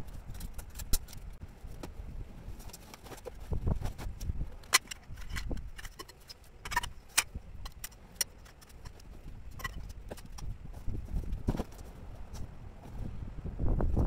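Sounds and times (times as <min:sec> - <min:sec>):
canvas rustling: 0:09.0 - 0:13.2.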